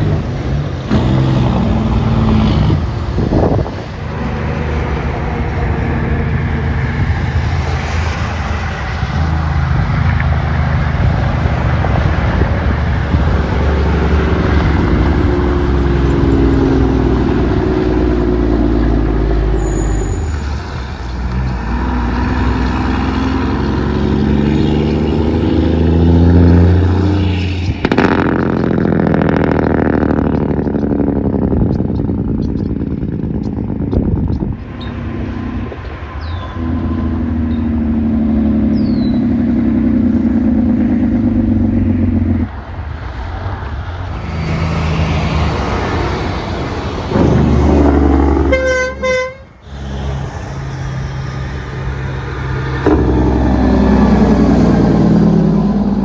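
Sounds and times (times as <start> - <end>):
truck engine brakes barking: 19.6 - 20.6.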